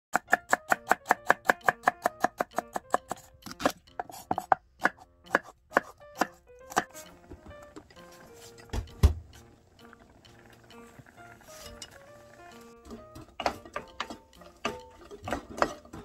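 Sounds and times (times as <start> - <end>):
knife chopping on wooden board: 0.1 - 7.0.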